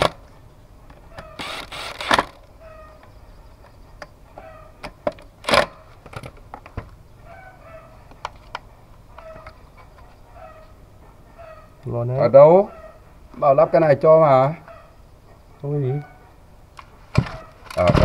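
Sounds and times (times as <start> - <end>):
cordless drill running: 1.4 - 2.3.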